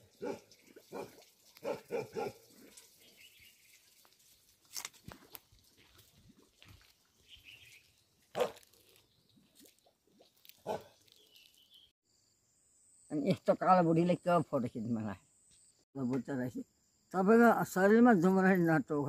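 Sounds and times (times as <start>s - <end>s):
dog barking deeply: 0.2s - 2.4s, 8.4s - 8.6s, 10.6s - 11.0s.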